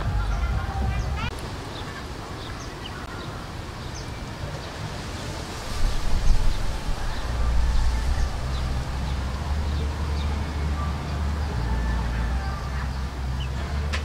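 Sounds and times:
low rumble: 5.7s - 14.0s.

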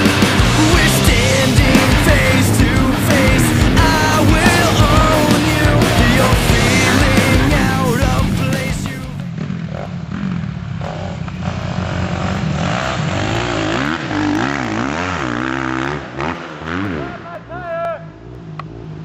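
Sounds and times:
rock song: 0.0s - 9.3s
dirt bike engine revving: 0.0s - 19.0s.

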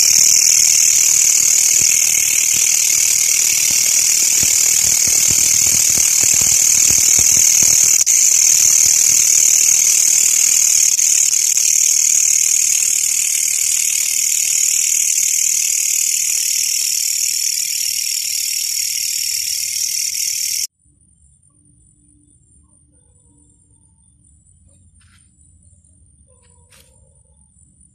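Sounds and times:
night insects buzzing: 0.0s - 20.7s.

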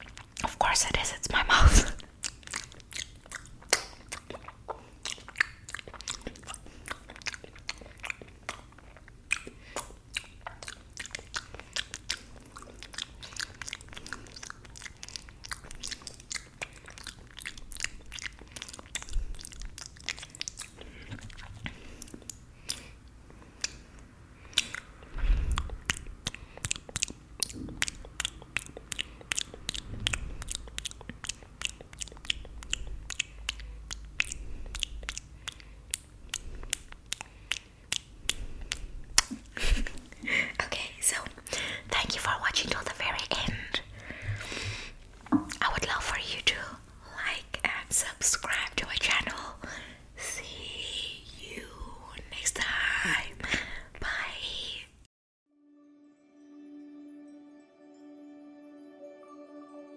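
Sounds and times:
wet mouth sucking and licking: 0.0s - 39.9s.

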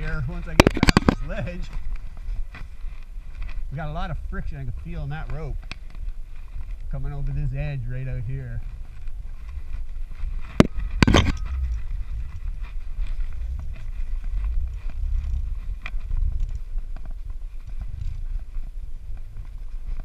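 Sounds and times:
low rope handling rumble: 0.0s - 20.0s
metal carabiners clicking: 10.5s - 13.9s.

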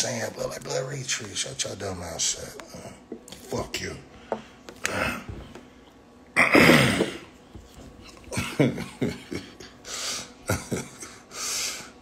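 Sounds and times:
person coughing: 6.4s - 7.3s
throat clearing: 6.4s - 7.3s.

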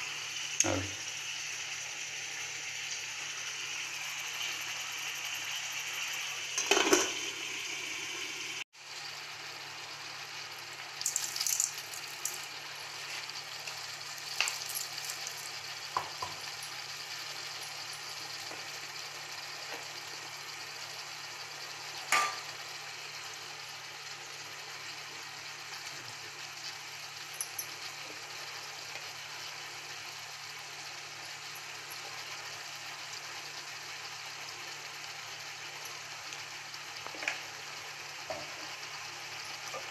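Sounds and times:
crab sizzling in a pan: 0.0s - 39.9s.

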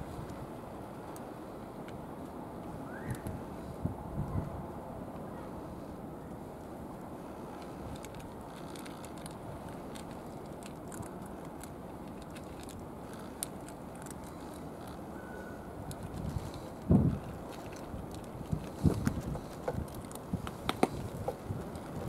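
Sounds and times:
cat chewing food: 7.8s - 15.0s, 15.9s - 22.0s.

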